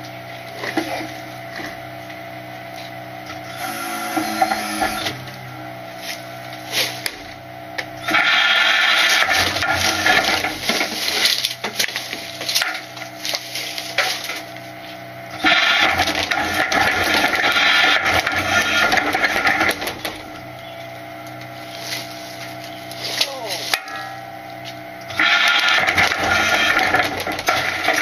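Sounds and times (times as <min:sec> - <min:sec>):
truck engine running: 0:00.0 - 0:28.0
hydraulic whine and squealing: 0:02.8 - 0:28.0
trash crunching and clattering: 0:08.2 - 0:20.7, 0:21.4 - 0:28.0.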